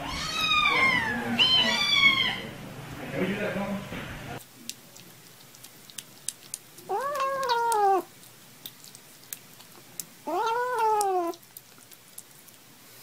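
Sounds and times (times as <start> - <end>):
kitten meowing: 0.0 - 2.5, 6.9 - 8.1, 10.2 - 11.4.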